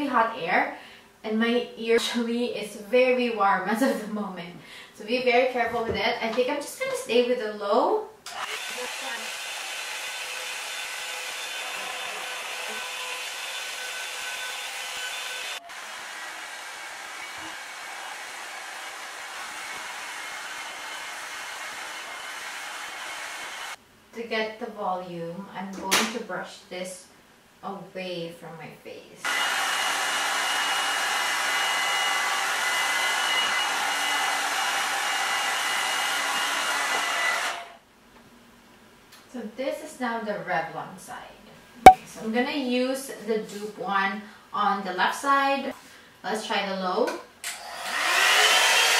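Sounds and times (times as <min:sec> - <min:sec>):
hot air brush running: 0:08.3 - 0:23.8.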